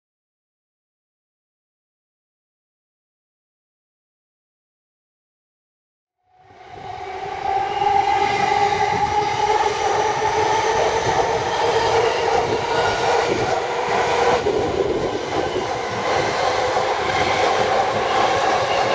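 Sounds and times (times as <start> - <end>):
train wheels rumbling: 6.5 - 18.9.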